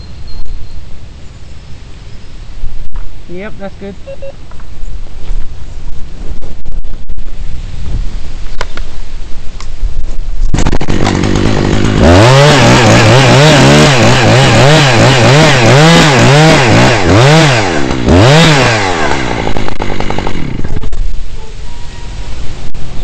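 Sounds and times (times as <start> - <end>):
chainsaw cutting wood: 10.4 - 21.2.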